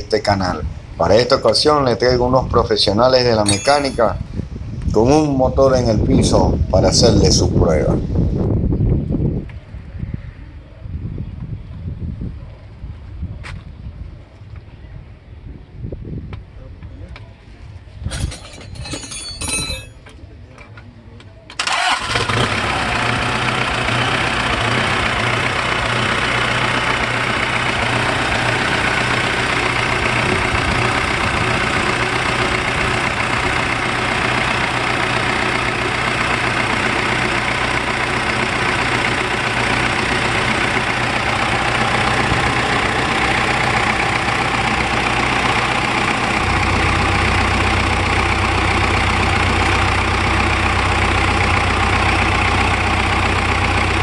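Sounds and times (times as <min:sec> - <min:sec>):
diesel engine idling: 0:21.6 - 0:54.0.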